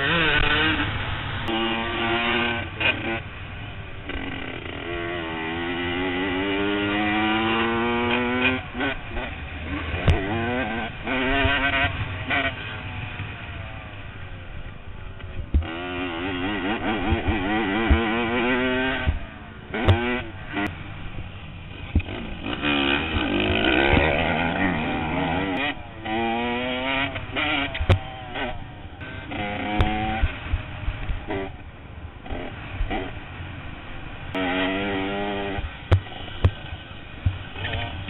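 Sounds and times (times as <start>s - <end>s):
dirt bike engine revving: 0.0s - 38.0s
sharp knocks over bumps: 18.9s - 20.2s, 27.7s - 28.1s, 35.5s - 37.9s.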